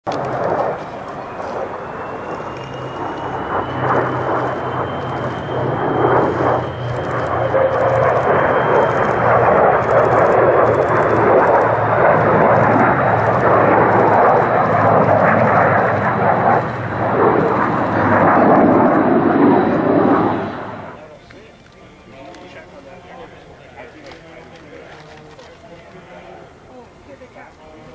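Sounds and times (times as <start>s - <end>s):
jet engine noise: 0.0s - 27.9s
piston aircraft engines droning: 0.0s - 27.9s
thin high whine: 0.2s - 23.4s.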